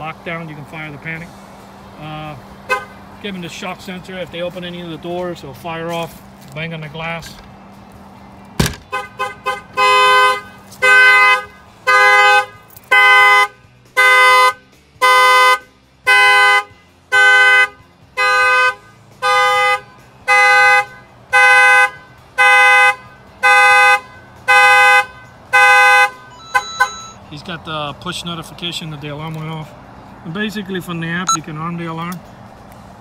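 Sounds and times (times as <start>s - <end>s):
car horn honking: 2.6s - 3.0s, 8.7s - 27.2s
knock on car window: 8.6s - 8.9s.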